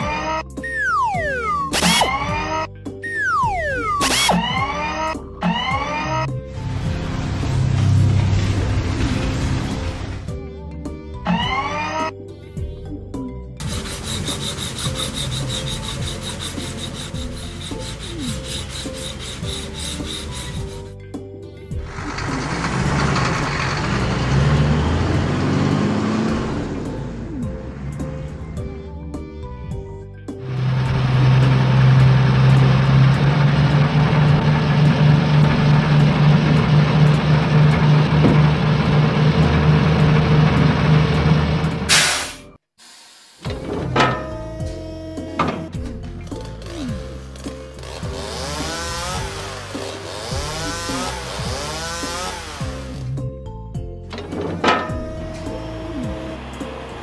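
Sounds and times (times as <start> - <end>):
soft background music: 0.0 - 23.0, 43.4 - 57.0
heavy truck engine humming: 2.8 - 10.4, 13.6 - 21.1, 21.7 - 42.3, 43.6 - 57.0
rhythmic rasping scrape: 13.6 - 21.0.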